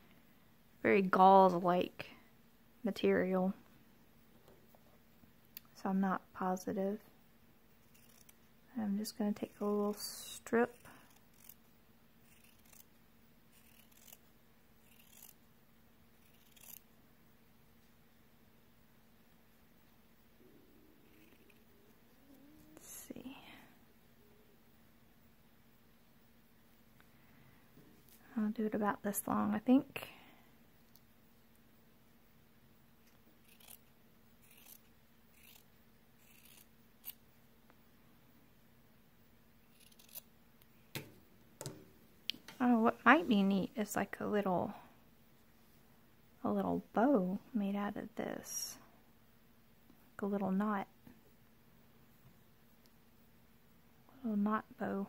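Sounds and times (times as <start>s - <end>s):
faint steady hum: 0.0s - 55.0s
scissors snipping fabric: 7.8s - 8.4s, 12.2s - 12.9s, 13.5s - 14.2s, 14.8s - 15.4s, 16.2s - 16.8s, 33.4s - 33.8s, 34.4s - 37.2s, 39.7s - 40.2s.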